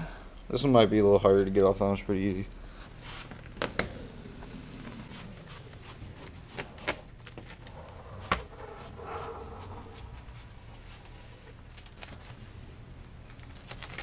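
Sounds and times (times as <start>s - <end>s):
low steady hum: 0.0s - 14.0s
decal being peeled: 13.3s - 14.0s.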